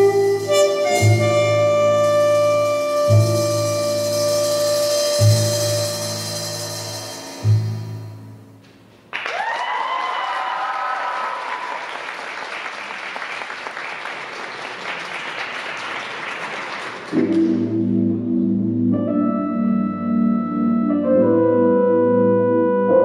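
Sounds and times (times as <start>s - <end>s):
keyboard chords: 0.0s - 8.7s, 17.1s - 23.0s
music: 0.0s - 8.8s, 17.1s - 23.0s
audience applause and cheers: 9.1s - 17.4s.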